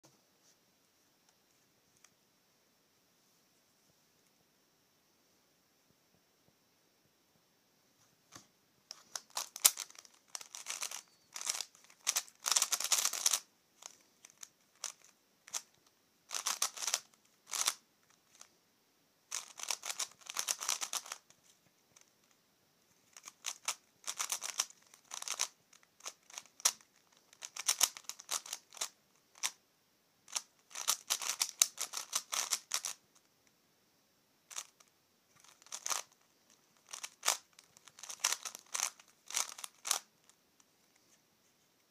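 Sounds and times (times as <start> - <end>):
plastic puzzle clicking and rattling: 8.9 - 18.5, 19.3 - 21.3, 23.1 - 29.6, 30.3 - 33.0, 34.5 - 40.4.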